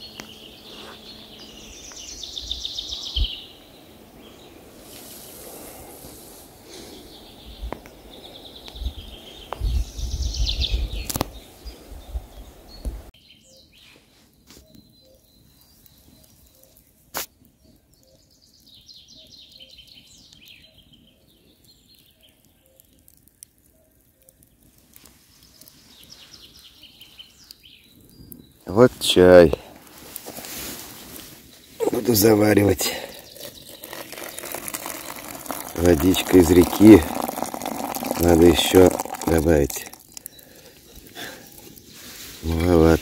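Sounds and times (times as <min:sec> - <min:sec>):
songbird trilling: 0:00.0 - 0:04.6, 0:31.6 - 0:41.2
wind rumble on microphone: 0:08.6 - 0:13.1.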